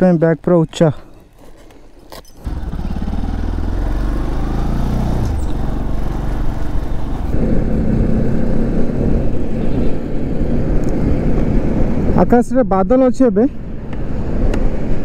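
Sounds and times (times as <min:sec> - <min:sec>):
motorcycle engine running: 0:02.4 - 0:12.1.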